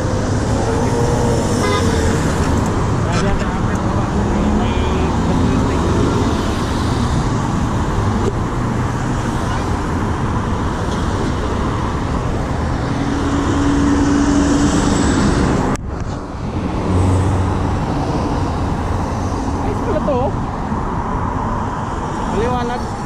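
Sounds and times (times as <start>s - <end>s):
motorbikes going by: 0.0s - 7.2s
road traffic passing: 0.0s - 23.0s.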